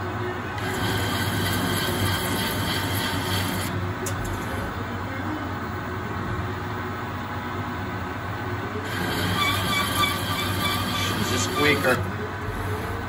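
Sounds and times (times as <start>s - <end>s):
cutting tool scraping metal: 0.6s - 3.7s, 8.9s - 12.0s
lathe spindle running: 0.6s - 4.9s, 8.8s - 13.0s
cutting tool squealing: 8.9s - 12.0s.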